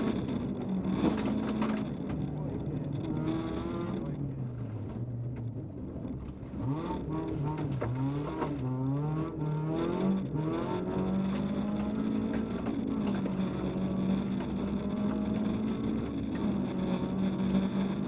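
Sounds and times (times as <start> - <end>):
rally car engine revving: 0.0 - 18.0.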